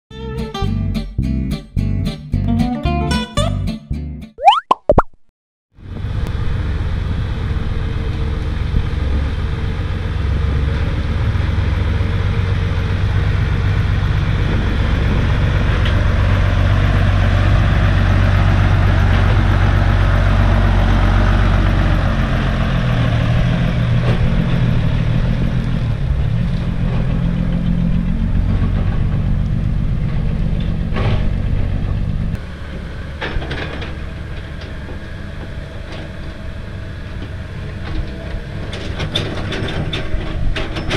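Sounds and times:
truck diesel engine running: 0:05.9 - 0:37.8
excavator engine: 0:06.0 - 0:40.9.

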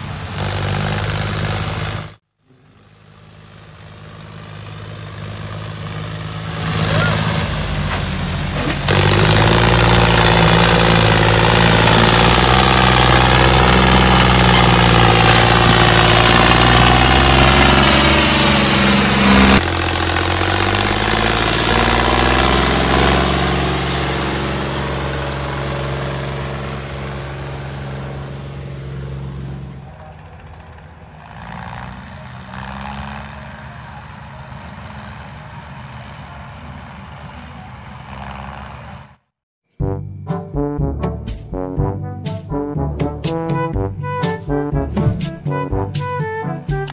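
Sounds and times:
toy tractor motor running: 0:08.9 - 0:23.9.

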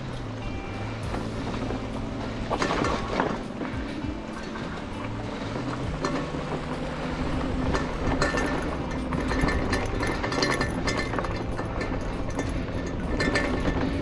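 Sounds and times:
e-bike rattling over rough trail: 0:00.0 - 0:14.0
steady rumble: 0:00.0 - 0:14.0.

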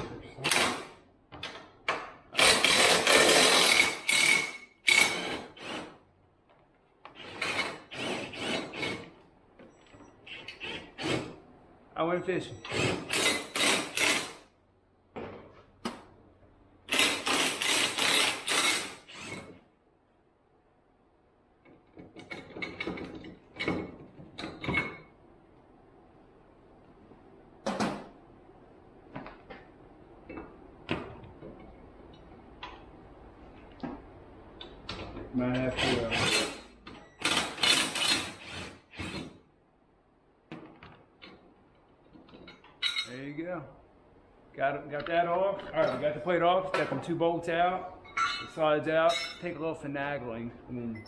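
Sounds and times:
impact driver bursts: 0:02.4 - 0:05.9, 0:12.7 - 0:14.4, 0:16.9 - 0:19.4.

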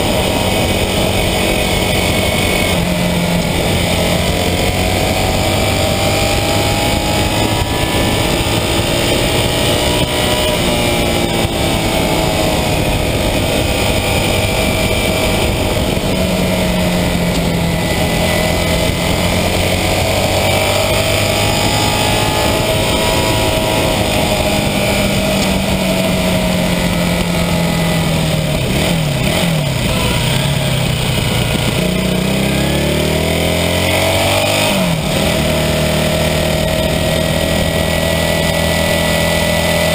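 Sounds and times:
motorcycle engine running: 0:00.0 - 0:39.9
wind rushing: 0:00.0 - 0:39.9.

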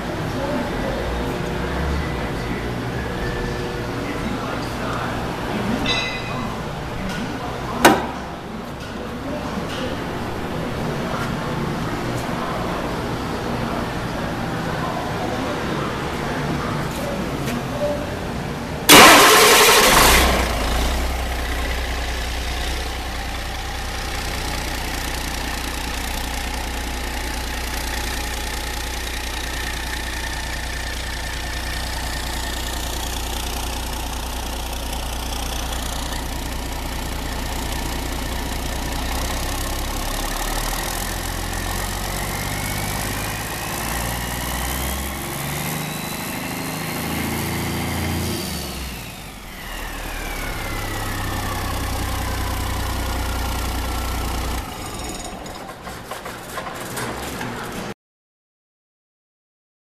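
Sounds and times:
diesel engine idling and revving: 0:00.0 - 0:58.0
turbocharger whine: 0:18.9 - 0:23.2, 0:33.2 - 0:55.0.

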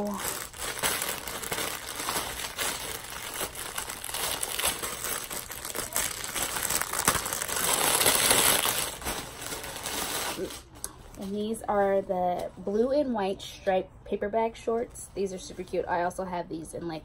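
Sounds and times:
plastic bag crinkling: 0:00.0 - 0:11.8.

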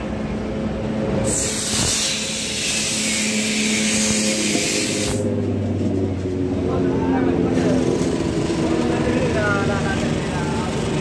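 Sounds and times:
compressed air hissing from valve: 0:01.2 - 0:05.3.

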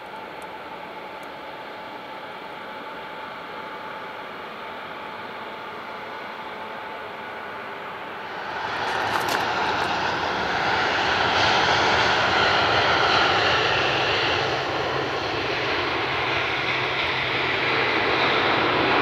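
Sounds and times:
jet engine rushing: 0:08.1 - 0:19.0.

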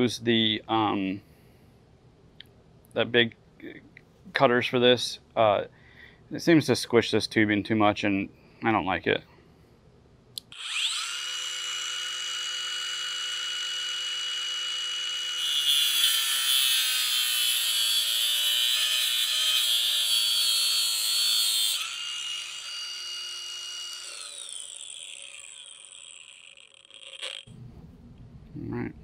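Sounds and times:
grinder cutting metal hose: 0:10.4 - 0:27.5
angle grinder whining: 0:10.4 - 0:27.6.

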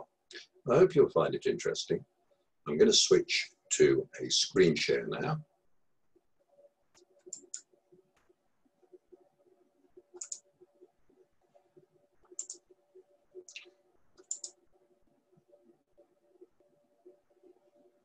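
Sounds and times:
faint steady hum: 0:00.0 - 0:18.0
computer mouse clicking: 0:06.9 - 0:08.3, 0:10.1 - 0:10.5, 0:12.2 - 0:12.6, 0:13.5 - 0:14.6.

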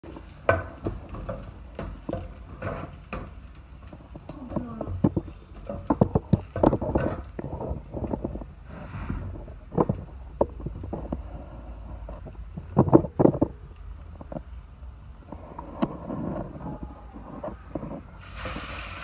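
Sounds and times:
garlic frying in oil: 0:00.0 - 0:19.0
metal ladle scraping pot: 0:00.6 - 0:03.4.

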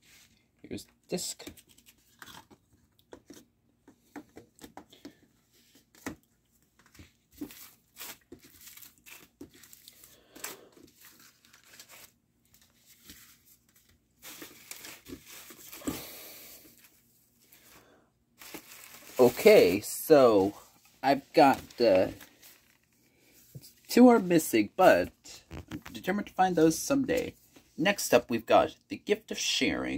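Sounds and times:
cardboard sleeves rustling: 0:03.2 - 0:27.8
plastic bag crinkling: 0:07.4 - 0:13.3, 0:14.2 - 0:16.9, 0:18.4 - 0:20.5, 0:21.1 - 0:23.0.

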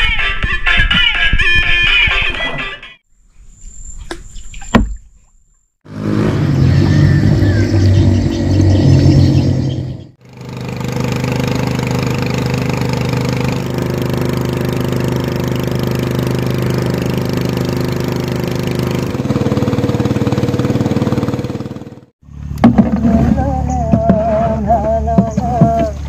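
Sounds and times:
music: 0:00.0 - 0:03.0
boat motor droning: 0:05.9 - 0:26.0.

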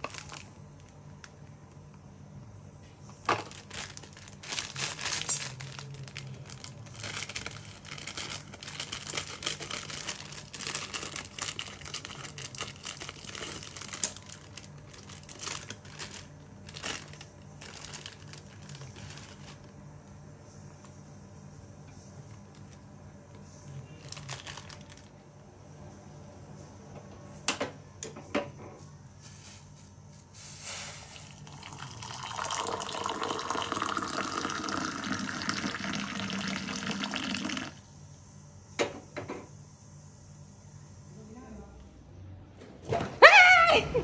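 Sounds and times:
foil sachet crinkling and tearing: 0:00.0 - 0:00.9, 0:03.2 - 0:19.7, 0:23.9 - 0:25.2.

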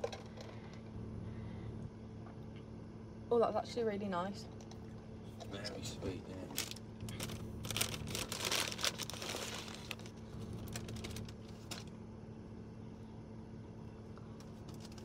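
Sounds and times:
low steady hum: 0:00.0 - 0:15.0
paper bag crinkling: 0:06.3 - 0:11.9.

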